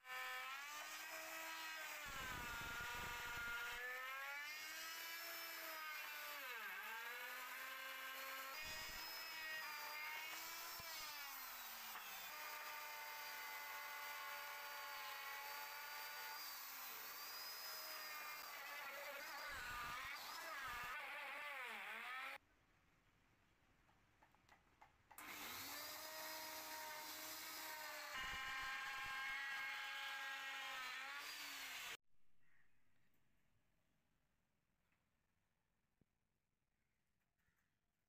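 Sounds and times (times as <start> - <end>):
router cutting wood: 0.0 - 22.4, 25.2 - 32.0.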